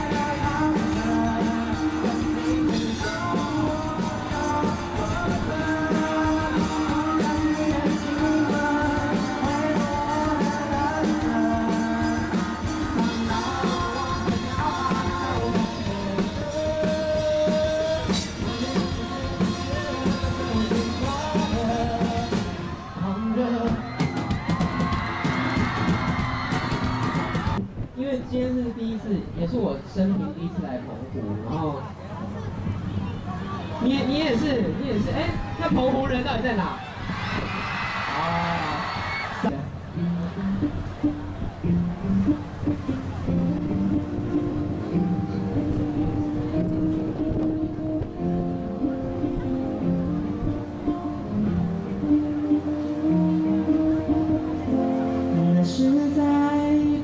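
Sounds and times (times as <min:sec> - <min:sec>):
man singing into microphone: 0:00.0 - 0:24.4, 0:53.0 - 0:57.0
pop-rock band playing: 0:00.0 - 0:28.0, 0:33.8 - 0:57.0.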